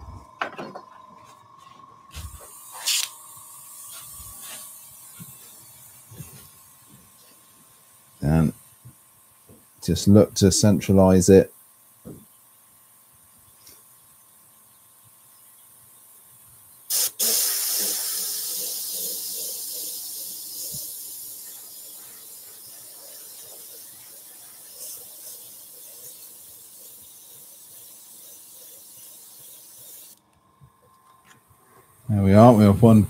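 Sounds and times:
airbrush air hiss: 0:02.1 - 0:11.6, 0:15.8 - 0:30.2.

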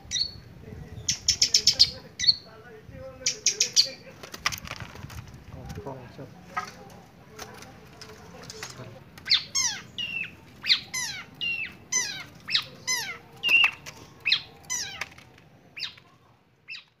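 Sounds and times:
shrike calling: 0:01.0 - 0:02.5, 0:03.2 - 0:04.1, 0:09.0 - 0:16.0.

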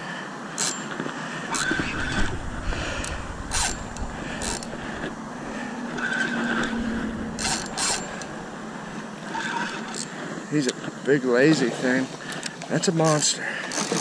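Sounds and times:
fishing reel clicking: 0:00.6 - 0:02.3, 0:03.0 - 0:05.1, 0:07.4 - 0:08.3, 0:09.3 - 0:10.8, 0:12.3 - 0:14.0
road traffic rumble: 0:01.1 - 0:10.7.

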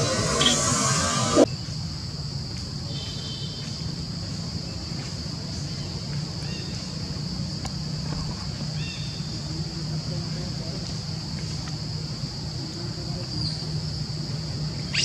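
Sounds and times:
high-pitched insect drone: 0:00.0 - 0:01.7.

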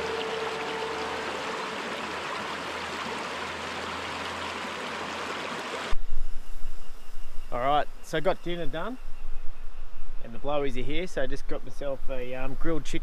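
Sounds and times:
river rushing over rocks: 0:00.0 - 0:05.9.

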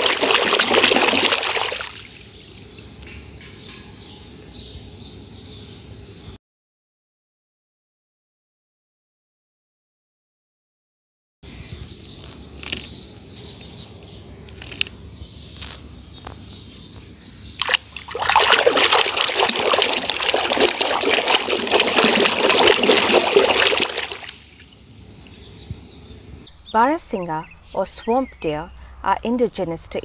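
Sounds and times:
water sloshing and splashing: 0:00.0 - 0:02.6, 0:17.6 - 0:25.3.

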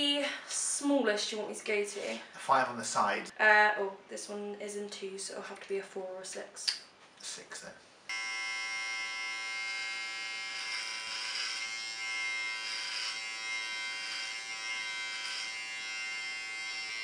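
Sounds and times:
electric hair clippers buzzing: 0:08.1 - 0:17.0.

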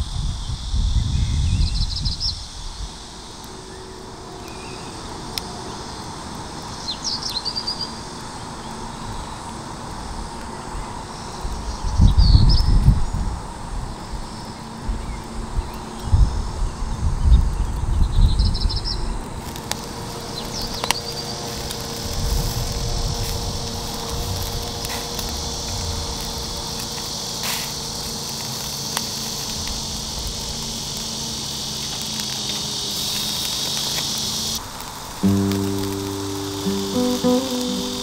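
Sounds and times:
meat sizzling on a grill: 0:18.4 - 0:38.0.

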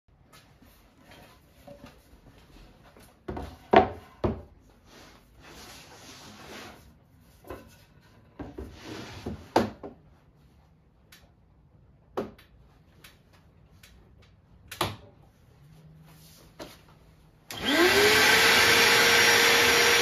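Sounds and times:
board sliding on table: 0:04.9 - 0:06.9, 0:08.4 - 0:09.7.

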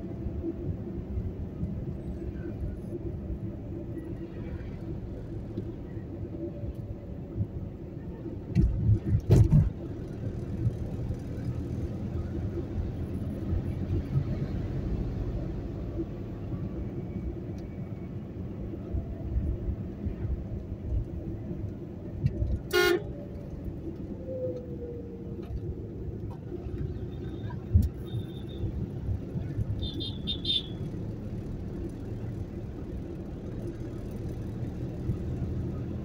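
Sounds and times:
car engine and tyre rumble: 0:00.0 - 0:36.0
vehicle horn toot: 0:22.7 - 0:23.1, 0:29.8 - 0:30.8.

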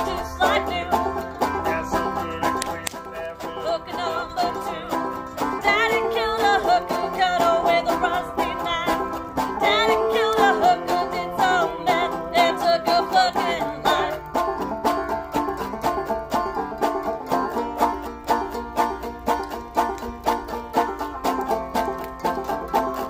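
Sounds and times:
person singing with vibrato: 0:00.0 - 0:14.3
banjo picking: 0:00.0 - 0:23.0
washboard scraping rhythm: 0:00.0 - 0:23.0.

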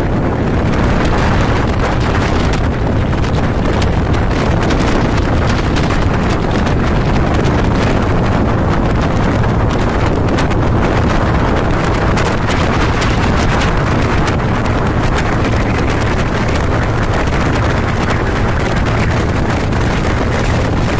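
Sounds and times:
boat engine droning: 0:00.0 - 0:20.9
rushing water: 0:00.0 - 0:20.9
wind buffeting microphone: 0:00.0 - 0:20.9.

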